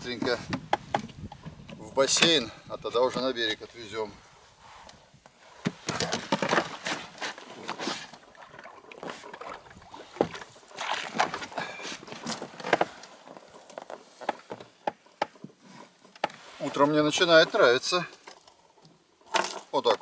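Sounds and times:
water splashing and sloshing: 5.4s - 19.9s.

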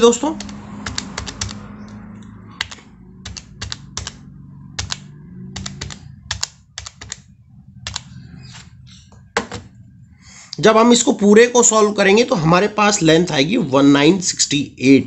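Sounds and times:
calculator keys clicking: 0.0s - 1.6s, 2.2s - 4.2s, 4.8s - 8.7s.

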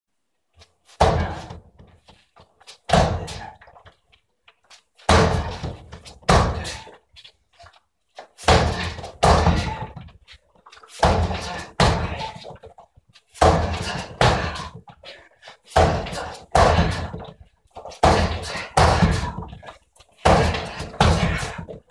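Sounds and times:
kicks thudding on training dummy: 1.0s - 1.8s, 2.9s - 3.6s, 5.1s - 6.9s, 8.4s - 10.1s, 11.0s - 12.4s, 13.4s - 14.8s, 15.7s - 17.4s, 18.0s - 21.9s.

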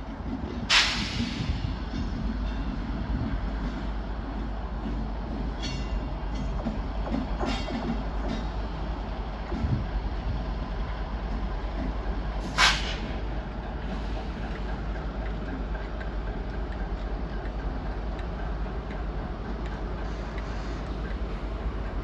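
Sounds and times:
diesel locomotive engine running: 0.0s - 22.0s
air hiss: 12.4s - 13.1s.

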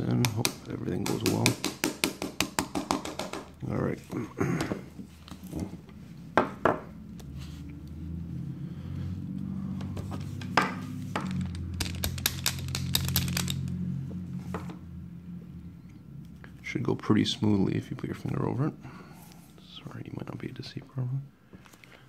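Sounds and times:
low hum: 6.9s - 16.7s
metal parts clicking: 11.2s - 13.8s.

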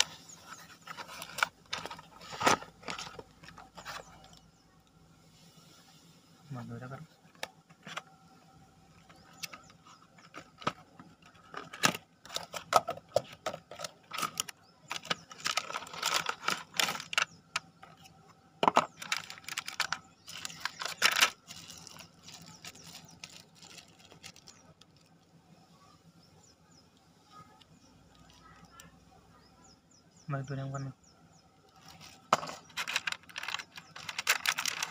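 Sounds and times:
crinkling packaging: 0.0s - 4.4s, 9.0s - 25.4s, 31.6s - 34.9s
plastic bag rustling: 10.2s - 18.0s, 18.8s - 25.2s, 31.7s - 34.9s.

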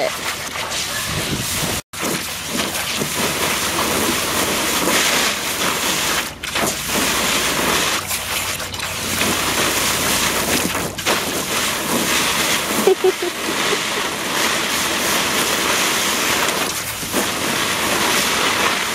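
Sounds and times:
hose spraying water into pool: 0.0s - 18.9s.

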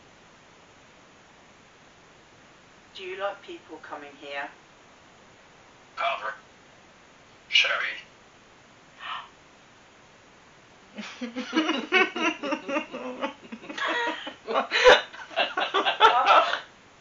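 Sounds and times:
person laughing: 11.0s - 16.6s.

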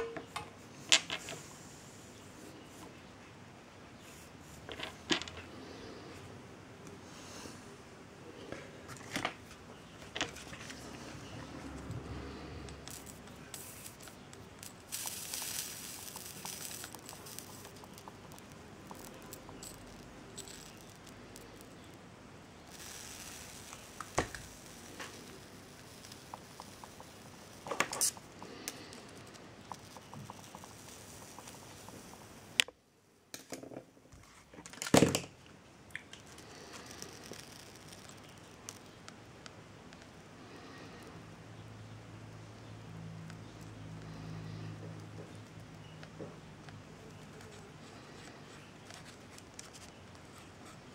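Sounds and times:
solder flux sizzling and crackling: 8.4s - 32.8s, 35.9s - 50.9s.

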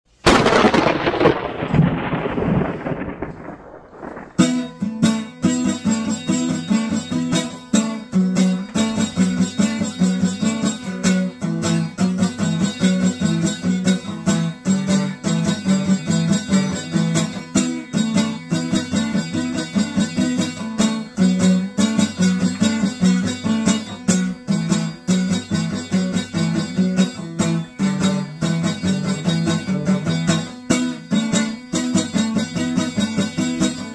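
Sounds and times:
thunderclap rumbling: 0.2s - 4.9s
plucked strings music with beat: 4.4s - 33.9s.

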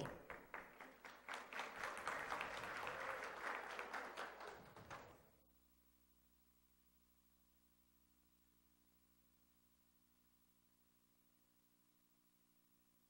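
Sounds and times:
faint audience applause: 0.0s - 5.3s.

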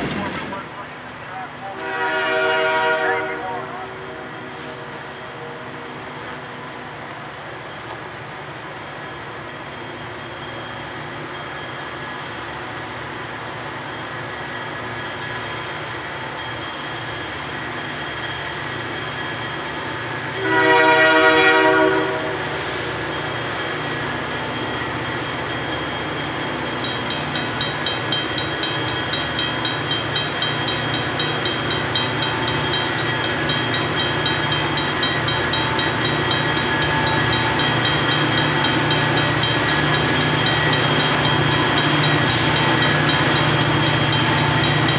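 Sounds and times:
diesel locomotive engine drone: 0.0s - 44.9s
locomotive horn blast: 1.6s - 6.0s, 20.3s - 22.6s.

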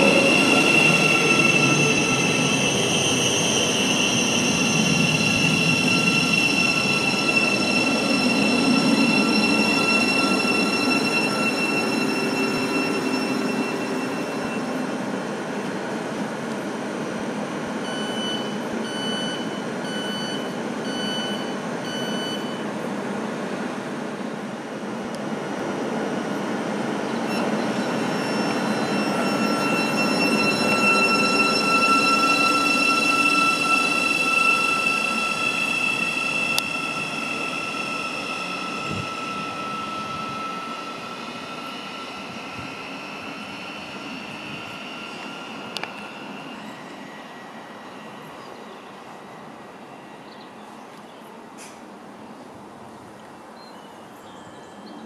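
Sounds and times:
electric train whine: 0.0s - 22.7s, 24.6s - 50.4s
door-closing warning beeps: 17.9s - 22.6s.

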